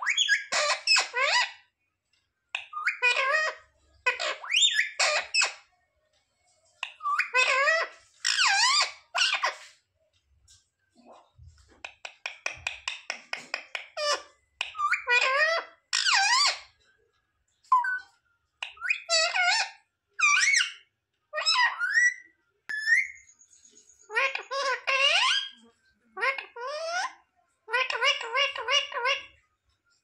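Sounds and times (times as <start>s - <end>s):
parakeet chirps: 0.0s - 1.7s, 2.6s - 5.7s, 6.8s - 9.7s, 11.8s - 16.7s, 17.7s - 29.4s
parakeet squawking: 0.0s - 1.7s, 2.6s - 5.7s, 6.8s - 9.7s, 11.8s - 16.7s, 17.7s - 23.3s, 24.1s - 29.4s.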